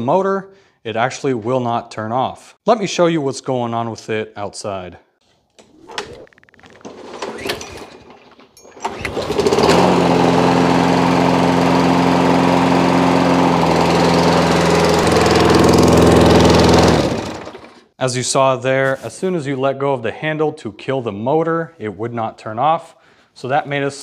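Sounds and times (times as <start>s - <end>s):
push mower engine running: 6.8s - 17.9s.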